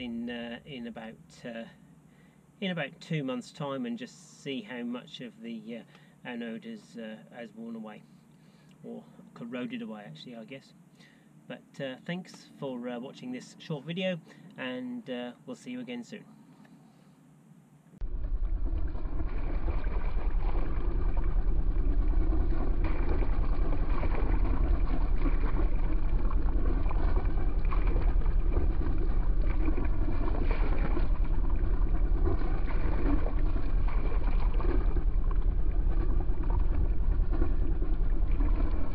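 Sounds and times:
water splashing and gurgling: 18.0s - 38.9s.

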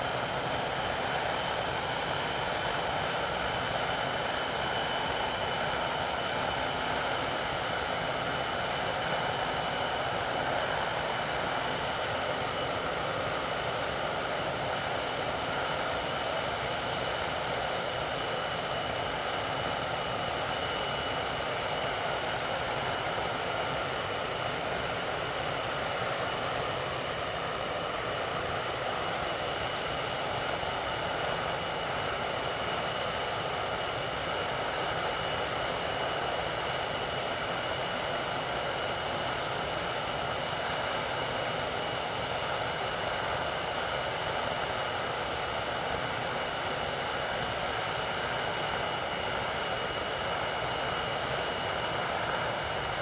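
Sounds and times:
jet engines roaring with whine: 0.0s - 53.0s.

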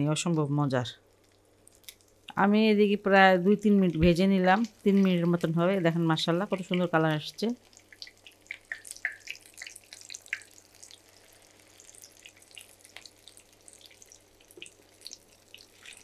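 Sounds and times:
cutlets sizzling in oil: 4.5s - 16.0s.

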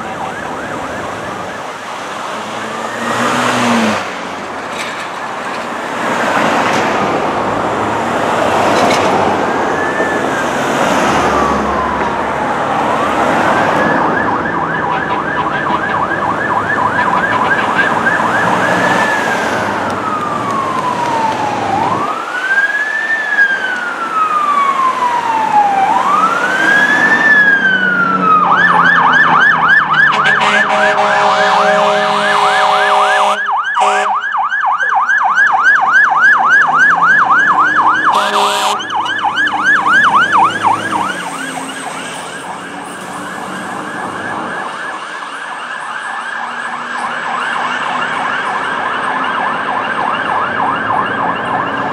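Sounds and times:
fire truck siren: 0.0s - 51.9s
horn blasts: 30.1s - 34.2s, 38.1s - 39.0s.

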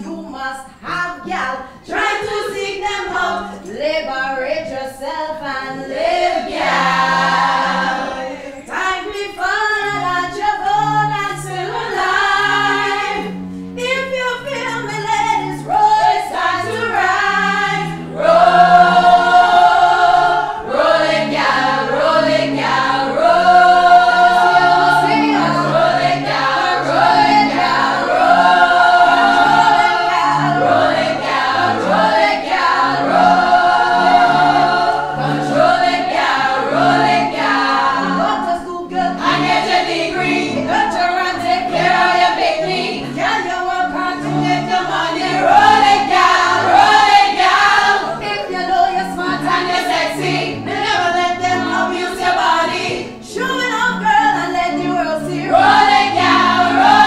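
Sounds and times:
women's choir singing: 1.2s - 13.4s, 14.2s - 57.0s.

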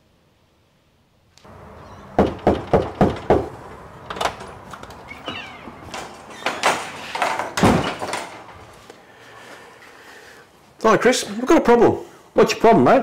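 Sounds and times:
door opening and closing: 1.4s - 8.8s
knocking on a door: 2.2s - 3.5s
loud thud: 7.5s - 8.3s.

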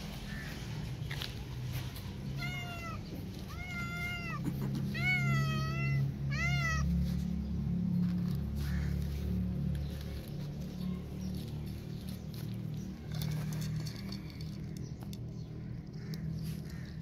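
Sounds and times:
cat meowing: 2.4s - 7.0s.

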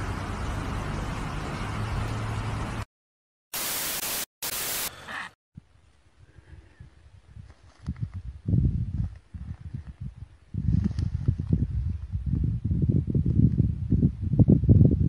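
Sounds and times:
tv static hiss: 3.6s - 5.0s.

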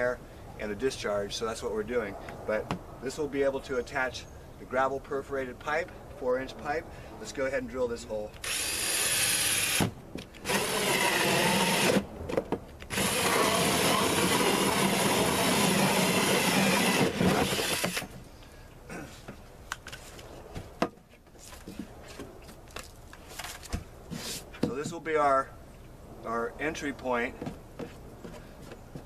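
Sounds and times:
cordless drill hole saw cutting plastic: 8.4s - 12.0s, 12.9s - 18.1s.

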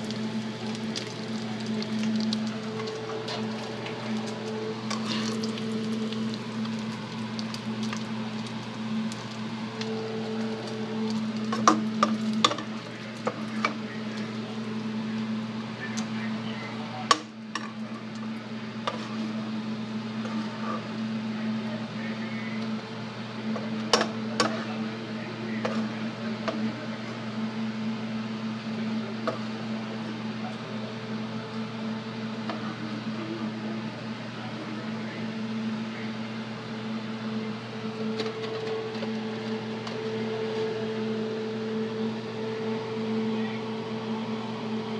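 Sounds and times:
bacon frying with sharp pops: 0.0s - 9.9s
steady low hum: 0.0s - 44.9s.

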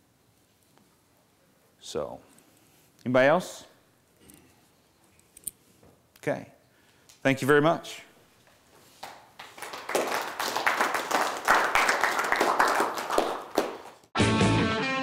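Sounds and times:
audience applause: 9.4s - 14.0s
rock music with electric guitar: 14.2s - 15.0s.

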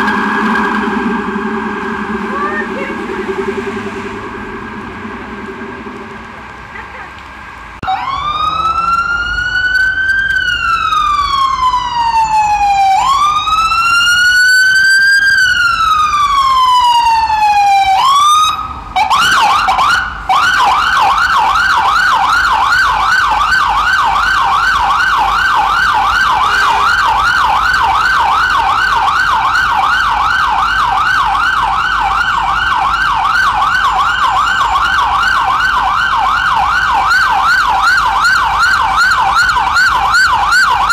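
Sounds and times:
ambulance siren: 0.0s - 40.9s.

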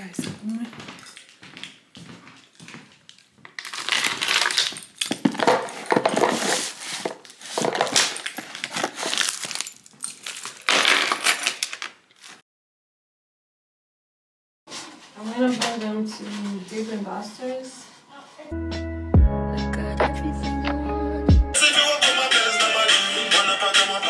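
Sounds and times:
small hard objects rattling: 3.6s - 12.4s.

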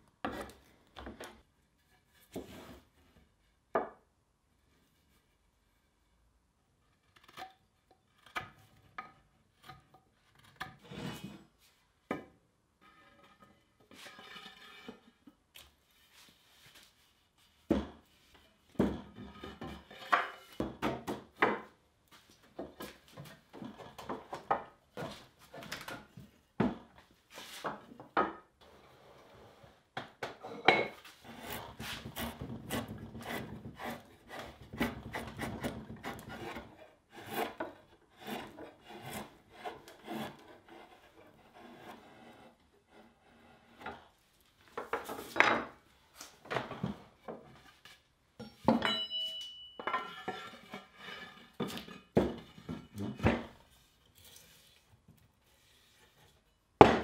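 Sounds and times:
rasp scraping wooden handle: 31.1s - 44.1s.

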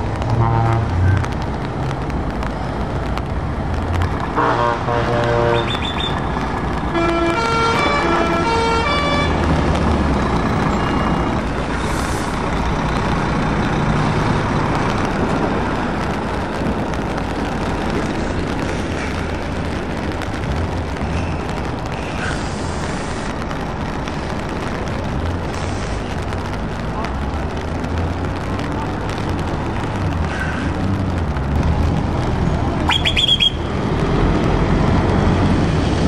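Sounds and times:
truck diesel engine: 0.0s - 36.0s
musical air horn: 4.4s - 5.8s, 6.9s - 9.4s
air hiss: 22.0s - 23.3s.

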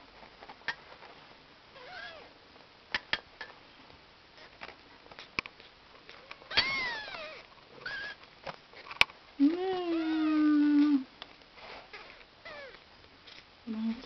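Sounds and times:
kittens mewing: 6.5s - 8.2s, 9.4s - 11.1s, 11.9s - 12.8s.

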